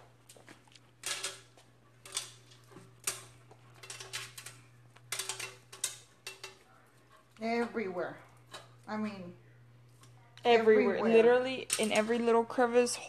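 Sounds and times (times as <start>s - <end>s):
gloved hands rustling and clicking: 0.0s - 6.7s
low steady hum: 0.0s - 13.0s.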